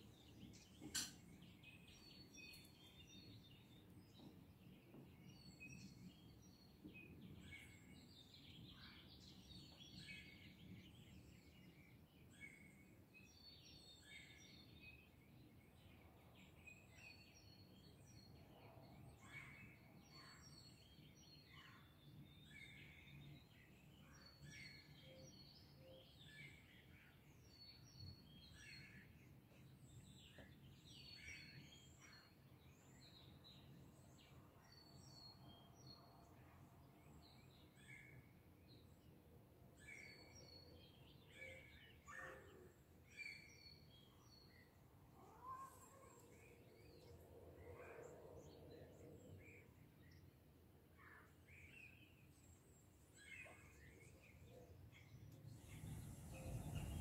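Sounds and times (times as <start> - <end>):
birds chirping: 51.0 - 57.0.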